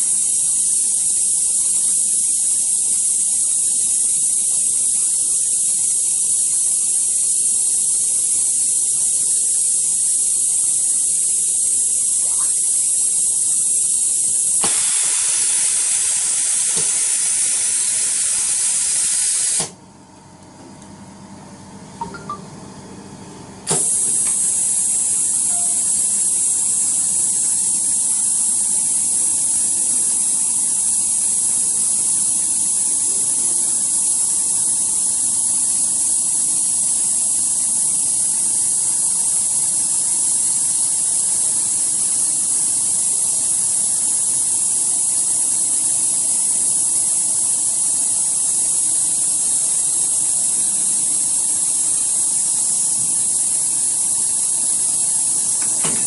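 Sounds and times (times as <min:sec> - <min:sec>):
machine air hiss: 0:00.0 - 0:19.8, 0:23.7 - 0:56.0
faint hum: 0:19.8 - 0:56.0.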